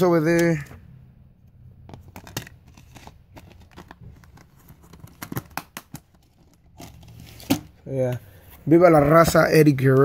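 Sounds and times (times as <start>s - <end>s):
plastic cases clicking and rustling: 1.9s - 8.2s.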